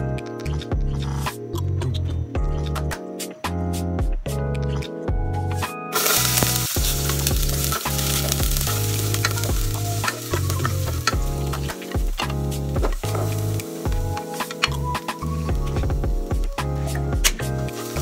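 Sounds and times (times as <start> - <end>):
background music: 0.0 - 18.0
garlic sizzling in hot oil: 6.0 - 14.9, 17.6 - 18.0.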